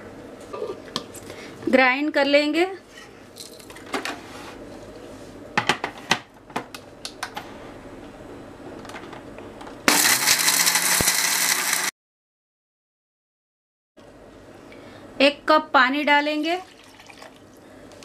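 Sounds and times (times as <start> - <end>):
mixer grinder motor grinding: 9.9 - 11.9.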